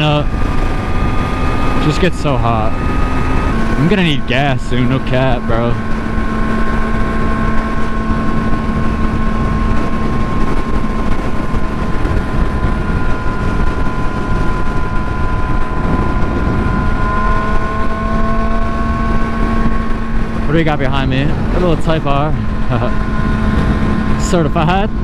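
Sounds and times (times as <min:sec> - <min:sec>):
motorcycle engine cruising: 0:00.0 - 0:25.0
wind rush on microphone: 0:00.0 - 0:25.0.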